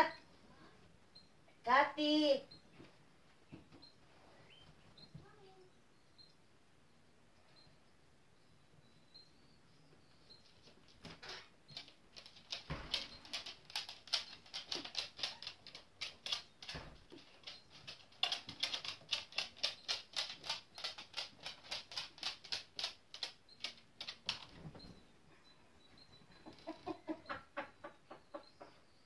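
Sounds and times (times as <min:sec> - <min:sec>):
dog claws clicking on hardwood floor: 0:10.6 - 0:24.7.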